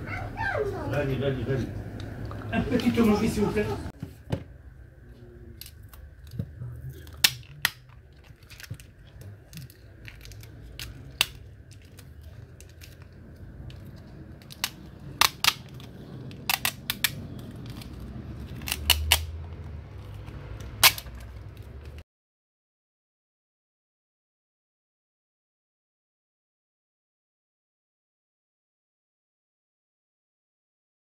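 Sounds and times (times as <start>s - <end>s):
steady low hum: 0.0s - 21.9s
plastic parts clicking and snapping: 5.6s - 22.0s.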